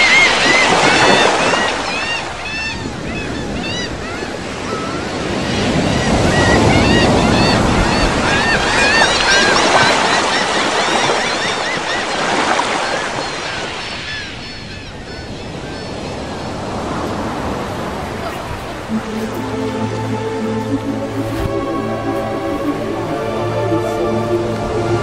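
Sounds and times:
surf washing on beach: 15.9 - 25.0.

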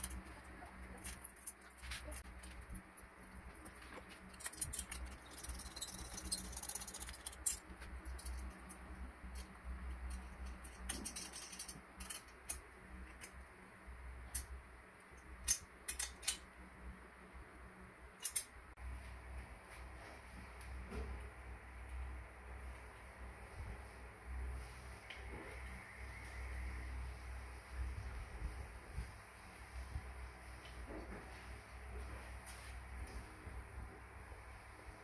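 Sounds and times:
small metal parts clicking: 0.0 - 13.4, 15.2 - 16.5, 18.2 - 18.6
faint low hum: 0.0 - 35.0.

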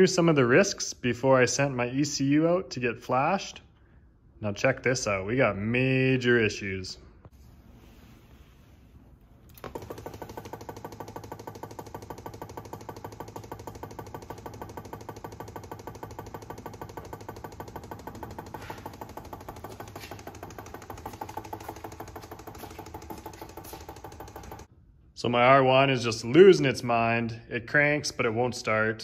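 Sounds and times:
motorcycle engine cranking: 9.5 - 24.7.

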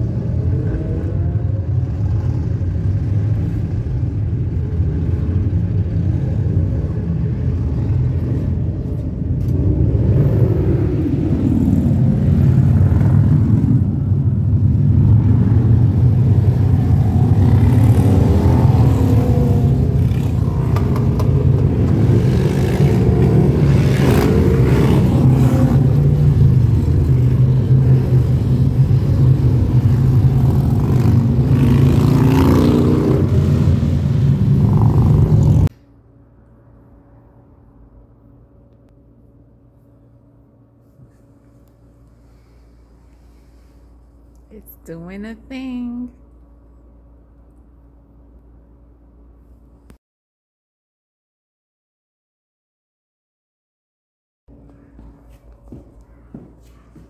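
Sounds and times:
motorcycle engines revving: 0.0 - 35.7.

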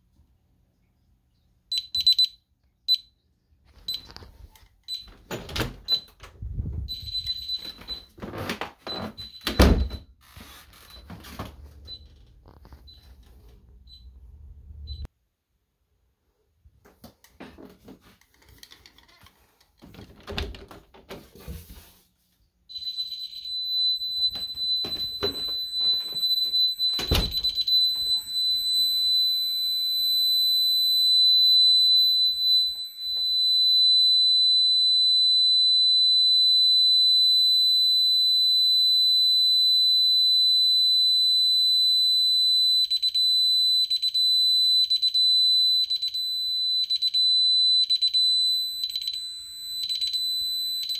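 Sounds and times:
alarm keypad buzzer tone: 22.7 - 37.8, 39.3 - 50.9.

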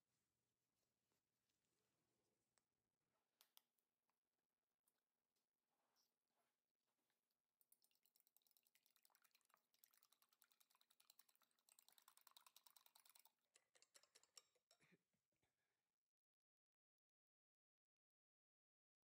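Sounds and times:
fork beating eggs in glass bowl: 7.6 - 14.8.

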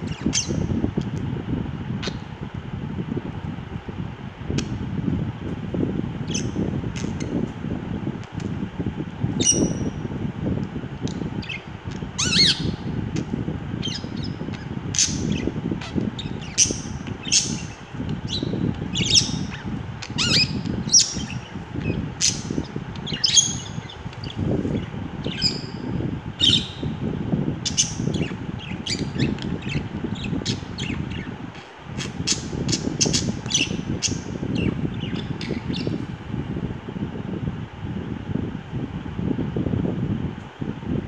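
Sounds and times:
budgerigars chirping and squawking: 0.0 - 0.7, 6.3 - 7.3, 12.2 - 12.8, 13.8 - 25.8, 27.6 - 36.0
low background rumble: 0.0 - 41.0.

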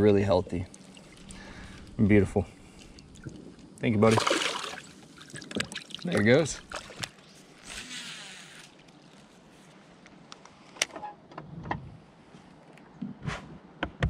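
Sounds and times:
fishing reel spool whir: 7.6 - 8.8.

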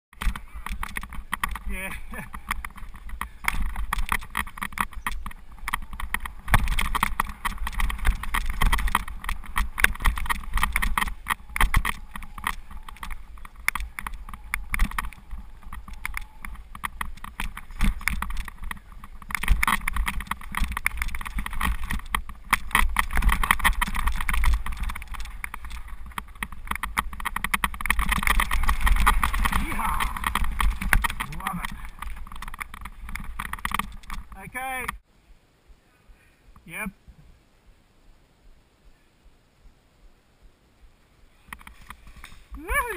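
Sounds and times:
bike clattering over bumps: 0.1 - 35.0
tyre noise on dirt: 0.1 - 35.0, 41.3 - 42.9.

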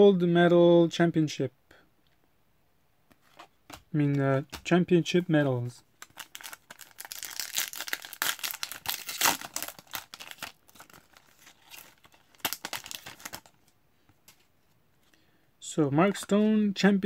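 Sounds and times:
foil wrapper crinkling and tearing: 6.0 - 13.6
cards rustling: 6.0 - 14.5.

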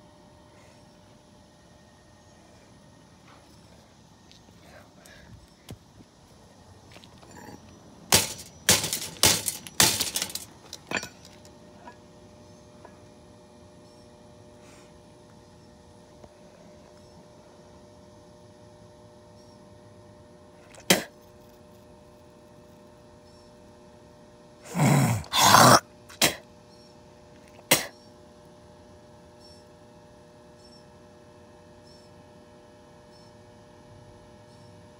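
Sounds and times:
faint electric fan hum: 0.0 - 34.9
person coughing: 20.8 - 21.1, 24.7 - 26.4, 27.7 - 27.9.

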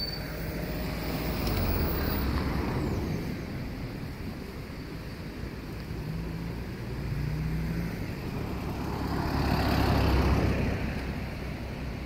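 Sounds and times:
car driving past: 6.3 - 11.2.

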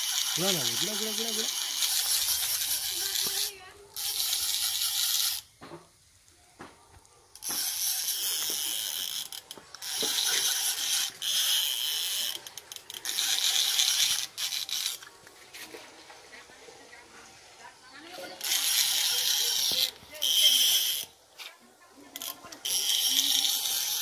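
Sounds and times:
fishing reel ratchet clicking: 0.0 - 5.5, 7.4 - 15.1, 18.4 - 21.2, 22.1 - 24.0.

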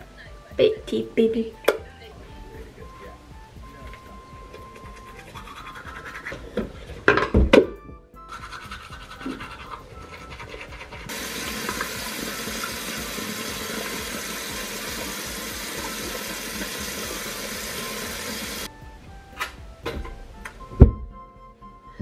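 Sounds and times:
sink tap running: 11.1 - 18.7.

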